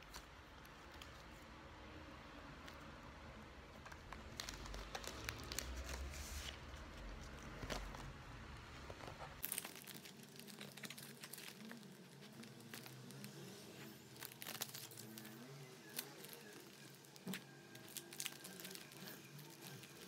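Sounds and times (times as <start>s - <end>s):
light clicks of cards and plastic: 0.0s - 1.4s
plastic sleeves crinkling: 3.7s - 20.0s.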